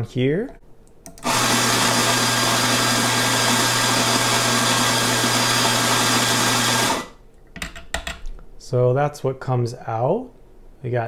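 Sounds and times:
coffee grinder whirring: 1.2s - 7.2s.

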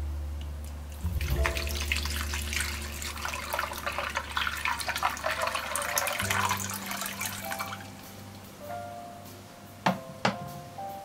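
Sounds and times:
water pouring onto ice cubes: 1.1s - 7.8s.

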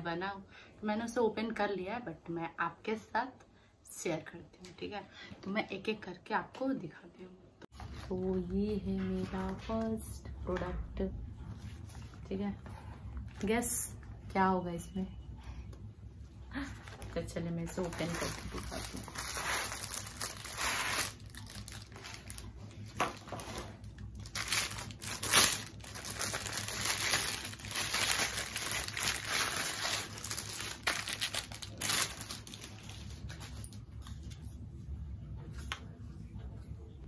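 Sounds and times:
plastic bag crinkling: 16.8s - 33.7s.

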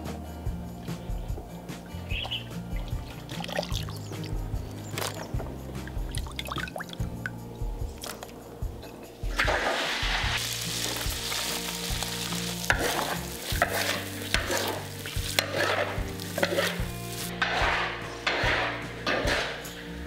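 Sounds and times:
food sizzling in hot oil: 9.7s - 17.3s
spatula scraping wok: 9.8s - 20.0s.

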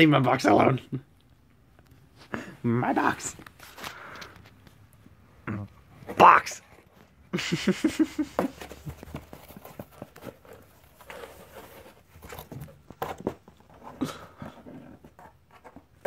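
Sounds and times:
cardboard box tapping and thumping: 8.3s - 13.8s
paws scrabbling: 8.4s - 16.0s.

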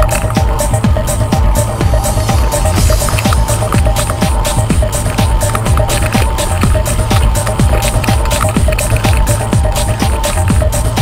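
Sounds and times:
electronic dance music: 0.0s - 11.0s.

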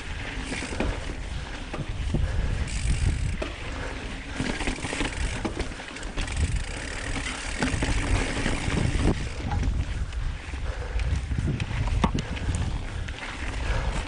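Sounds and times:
bike knocking and rattling: 0.0s - 14.0s
bike tyres rolling on dirt: 0.0s - 14.0s
wind on microphone: 0.9s - 3.6s, 7.6s - 14.0s.

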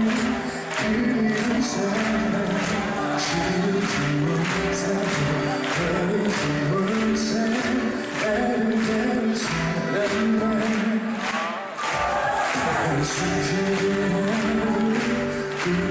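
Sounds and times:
backing music with steady beat: 0.0s - 15.9s
man singing into microphone: 0.0s - 15.9s.

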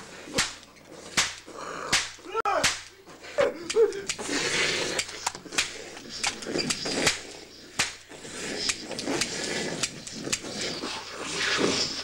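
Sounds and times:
hissing noise: 4.1s - 12.0s.

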